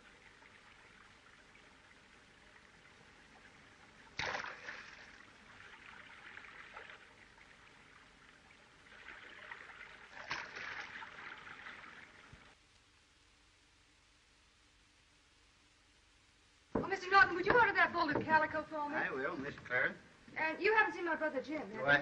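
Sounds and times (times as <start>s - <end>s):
creek water running: 0.0s - 12.6s.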